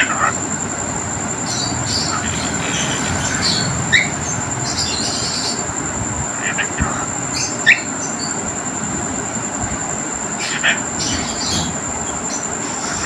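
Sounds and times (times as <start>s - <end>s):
high-pitched whine: 0.0s - 13.0s
steady background noise: 0.0s - 13.0s
parrot chirping: 1.4s - 5.8s, 6.4s - 8.4s, 10.4s - 13.0s.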